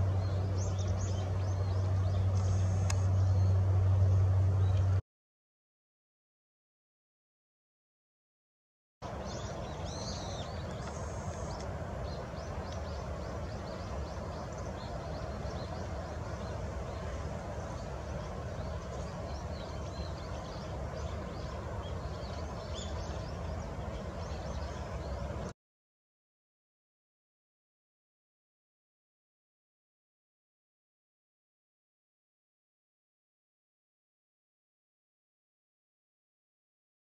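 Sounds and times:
low outdoor background noise: 0.0s - 5.0s, 9.0s - 25.5s
faint high chirps and ticks: 9.3s - 16.2s.

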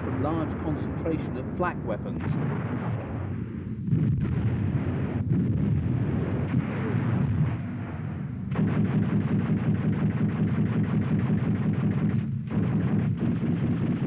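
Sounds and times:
anti-aircraft gunfire and shell bursts: 0.0s - 14.0s
rapid automatic gunfire: 8.5s - 14.0s.

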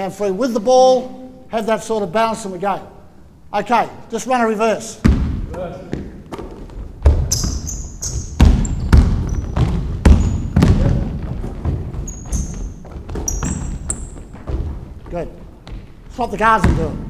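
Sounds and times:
basketball dribbling on hardwood: 5.0s - 17.0s
sneaker squeaks: 5.8s - 16.8s.

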